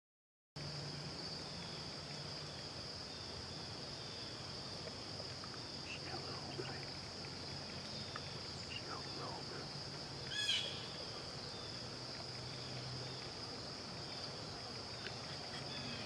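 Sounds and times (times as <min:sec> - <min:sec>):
insects chorus: 0:00.6 - 0:16.0
faint chirps: 0:05.7 - 0:11.8.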